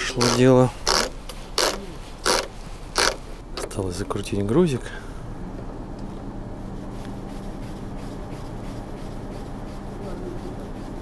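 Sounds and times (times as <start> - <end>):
faint rubbing with light ticks: 0.0 - 3.4, 6.6 - 11.0
steady low hum: 0.0 - 11.0.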